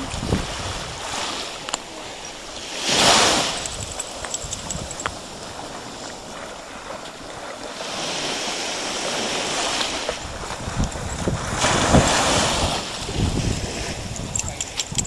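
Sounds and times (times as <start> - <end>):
small waves washing onto beach: 0.0 - 15.0
wind on microphone: 0.0 - 15.0.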